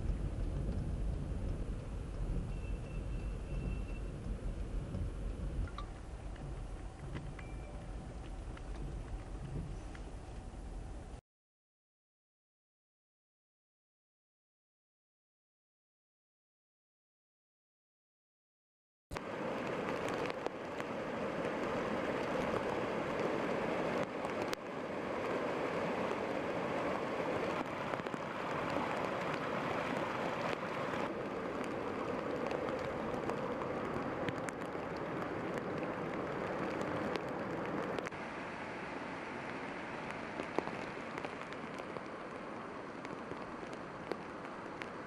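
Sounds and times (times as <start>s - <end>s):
heavy rain: 0.0s - 11.2s, 19.2s - 45.0s
rushing floodwater: 19.2s - 45.0s.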